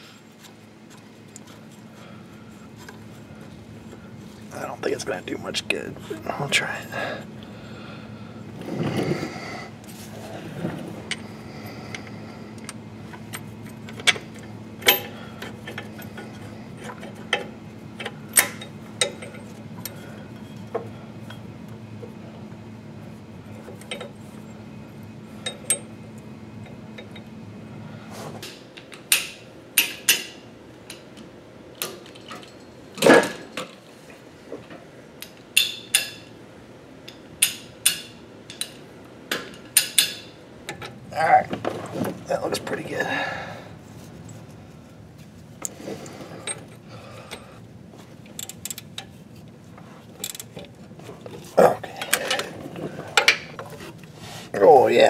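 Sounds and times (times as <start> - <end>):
steady low hum: 0.0 - 55.0
hand tools clinking on metal: 14.8 - 20.0, 51.4 - 52.6.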